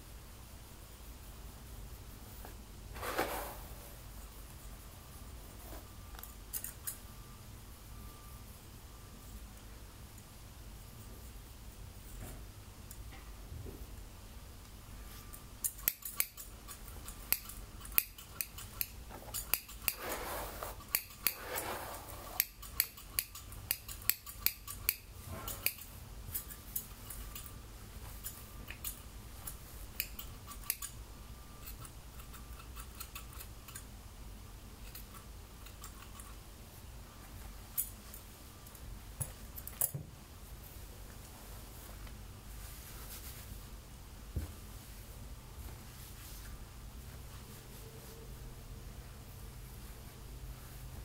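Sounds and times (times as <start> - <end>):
scissors snipping hair: 6.5 - 7.0, 15.6 - 20.0, 22.4 - 27.5, 28.2 - 31.0, 31.6 - 33.9, 34.8 - 36.4.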